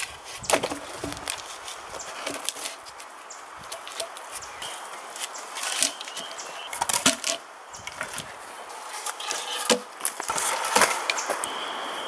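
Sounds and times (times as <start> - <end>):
logs knocking against wood: 0.0 - 3.0, 5.2 - 8.3, 9.3 - 11.2.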